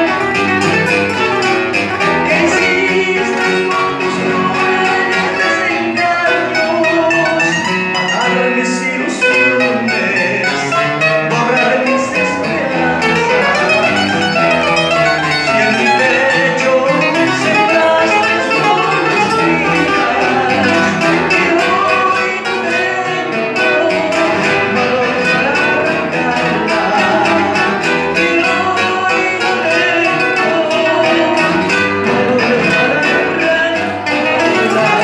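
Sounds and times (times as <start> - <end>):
acoustic guitars playing: 0.0 - 35.0.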